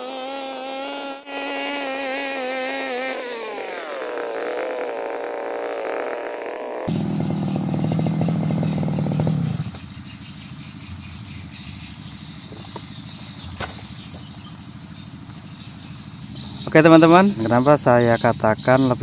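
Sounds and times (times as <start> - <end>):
brush cutter engine: 0.0 - 10.2
insects chirping: 1.7 - 19.0.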